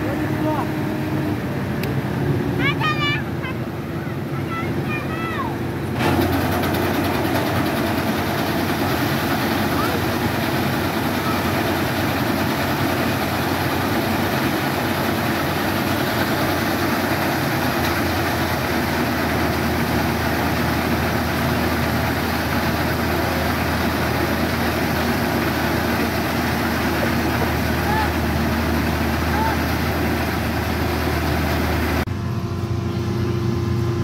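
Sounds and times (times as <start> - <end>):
combine harvester machinery humming: 0.0 - 34.0
grain pouring from auger: 6.0 - 32.0.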